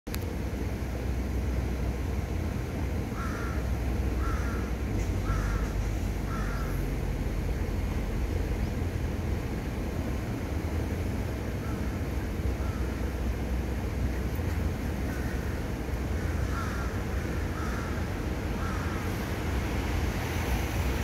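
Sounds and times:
low rumble of city traffic: 0.1s - 21.0s
bird calling: 3.1s - 6.9s, 11.6s - 13.2s, 14.1s - 19.2s.

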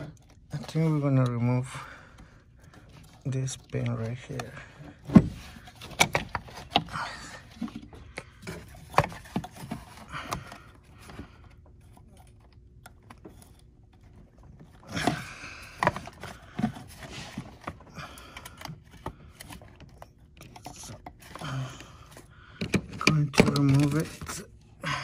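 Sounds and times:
clicks and knocks of plastic parts: 0.0s - 24.6s.

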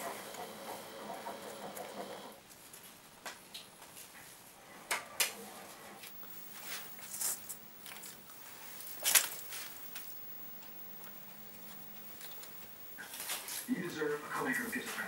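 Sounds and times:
rustling handling noises: 6.0s - 15.0s.

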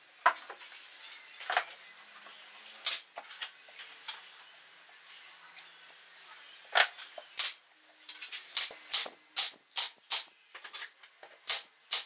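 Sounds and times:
nail gun firing into wood: 8.6s - 10.3s, 11.5s - 12.0s.

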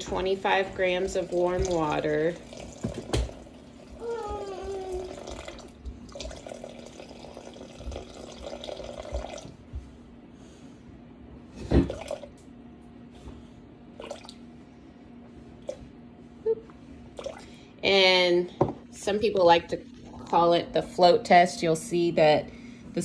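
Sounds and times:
water pouring into glass bowl: 5.1s - 9.5s.

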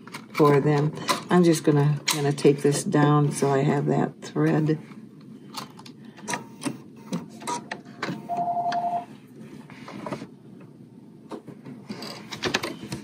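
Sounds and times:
sewing machine electronic beep: 8.3s - 9.1s.

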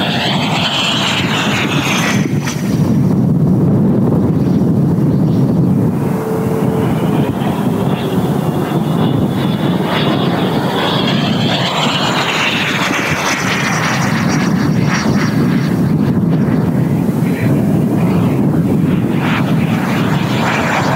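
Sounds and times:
model jet fan whining: 0.0s - 20.9s
wind buffeting microphone: 0.0s - 20.9s.

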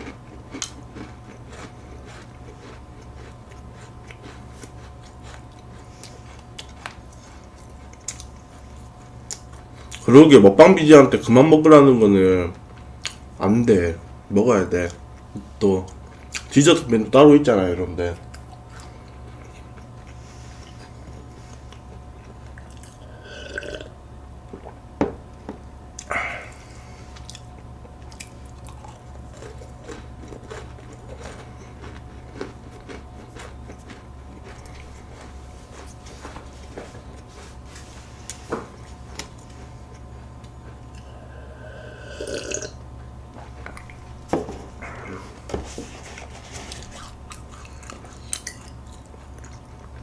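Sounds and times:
steady low hum: 0.0s - 50.0s
person gulping milk: 22.6s - 23.9s, 40.8s - 42.8s.

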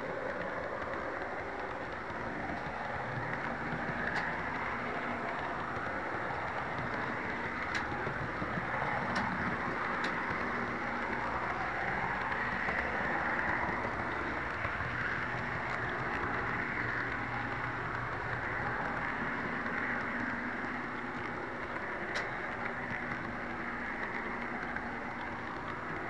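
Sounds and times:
model train wheels and motor rumble: 0.0s - 26.0s.

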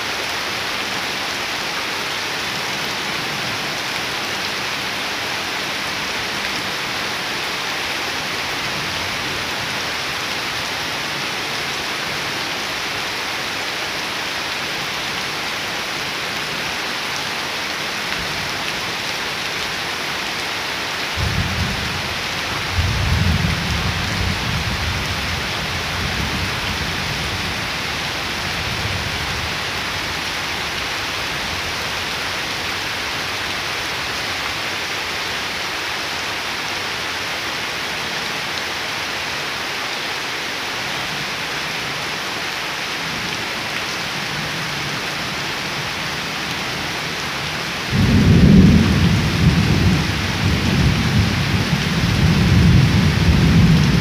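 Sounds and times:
heavy rain on water and leaves: 0.0s - 54.0s
low rumble of thunder: 47.9s - 54.0s.

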